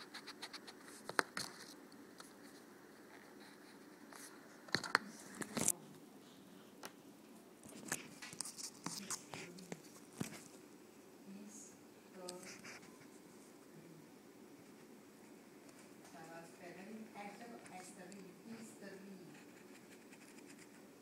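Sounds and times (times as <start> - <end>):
scratchy drawing strokes on paper: 0.0 - 1.7, 8.0 - 10.5, 12.2 - 13.4, 17.4 - 20.8.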